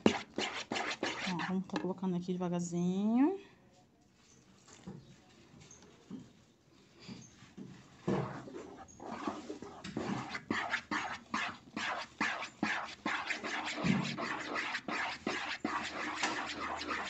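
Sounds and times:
spatula scraping soap in a pan: 0.0 - 1.9, 6.8 - 17.0.

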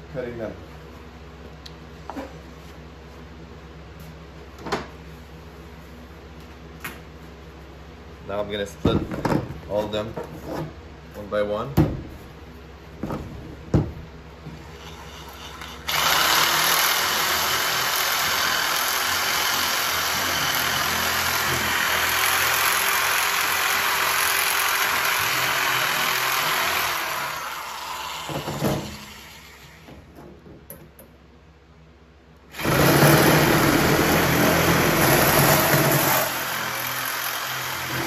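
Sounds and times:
electric metal shear cutting sheet: 14.8 - 29.7, 32.5 - 38.0.

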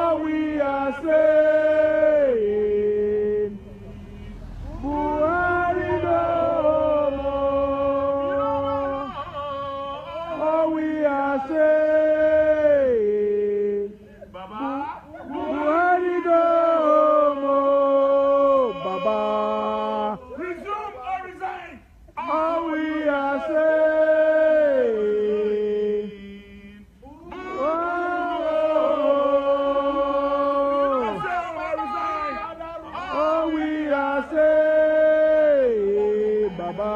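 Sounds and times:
protesters singing a chant: 0.0 - 20.7, 22.1 - 36.9.

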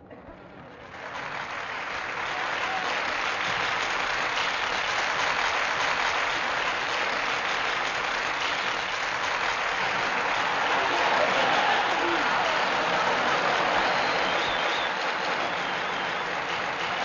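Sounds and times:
large crowd applauding: 0.8 - 17.0.

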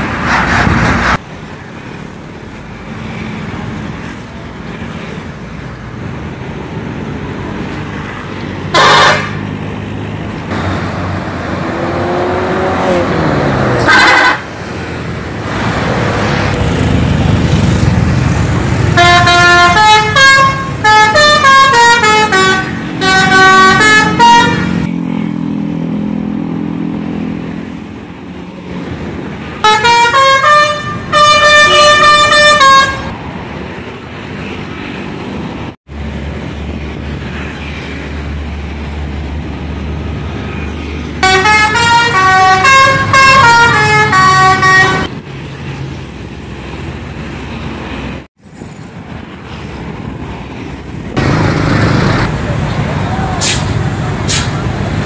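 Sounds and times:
passing traffic: 0.0 - 55.0
multi-tone air horn tunes: 8.7 - 9.4, 13.8 - 14.5, 19.0 - 24.9, 29.6 - 33.1, 41.2 - 45.1
bus engine running low: 26.0 - 55.0.

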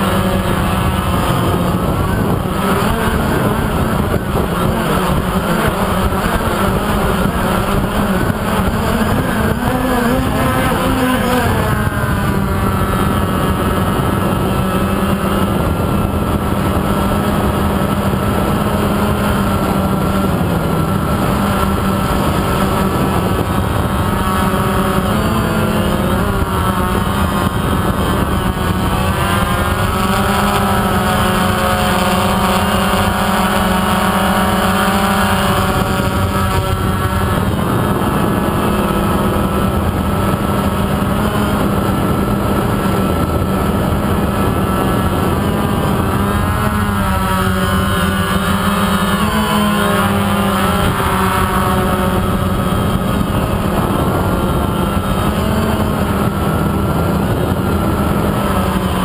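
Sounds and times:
drone motors buzzing: 0.0 - 59.0.

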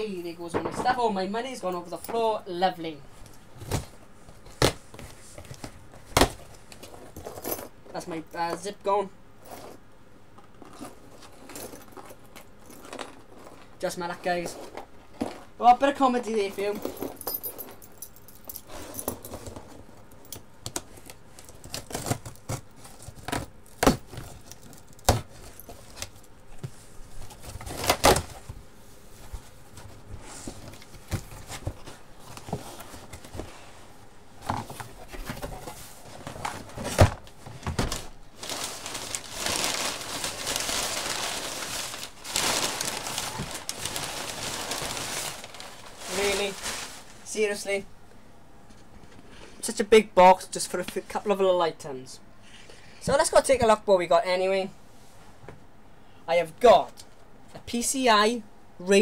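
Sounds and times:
keys clinking: 16.7 - 19.4
packing paper crinkling: 20.8 - 26.3, 37.6 - 47.6
tape and cardboard tearing: 27.6 - 28.4.

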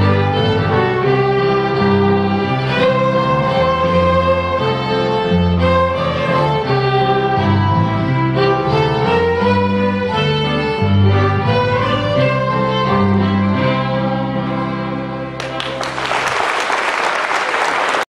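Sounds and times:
fiddles bass and piano playing: 0.0 - 16.0
audience applause: 15.4 - 18.0.

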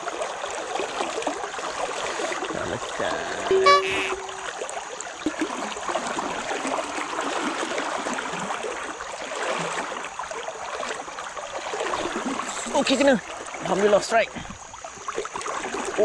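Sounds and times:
river water rushing over shallows: 0.0 - 16.0
short steady tone: 3.4 - 4.6.

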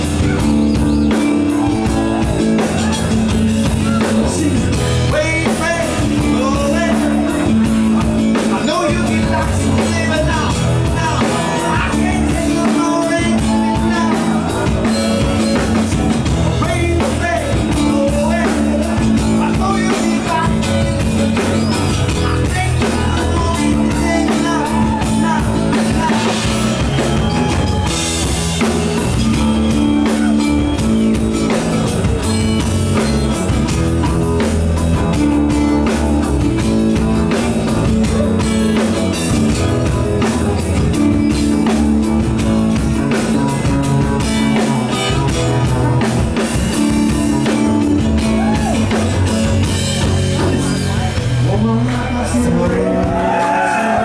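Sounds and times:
live rock band: 0.0 - 54.0
man singing: 0.0 - 54.0.

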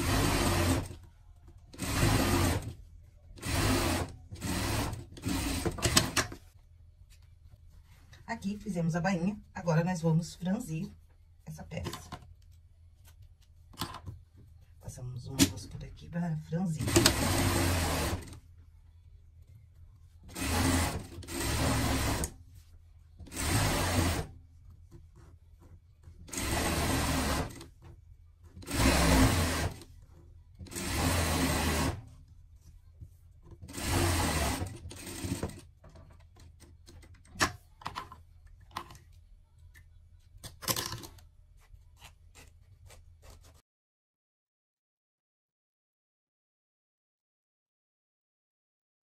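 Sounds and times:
sewing machine stitching: 0.0 - 1.0, 1.7 - 2.8, 3.4 - 6.4, 16.8 - 18.4, 20.3 - 22.4, 23.2 - 24.4, 26.2 - 27.7, 28.6 - 29.9, 30.6 - 32.1, 33.6 - 35.8.

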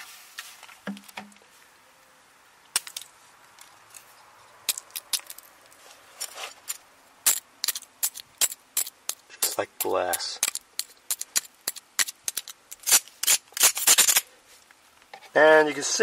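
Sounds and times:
frozen flower cracking on concrete: 2.7 - 14.3.

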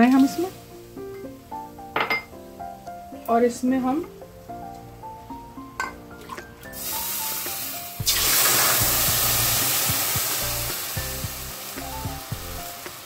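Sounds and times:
water hissing in hot pan: 0.0 - 1.1, 6.7 - 13.0.

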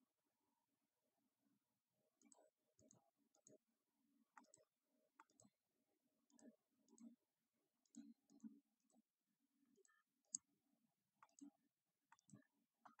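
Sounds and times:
computer mouse clicks: 2.2 - 3.6, 4.4 - 5.6, 11.2 - 13.0.

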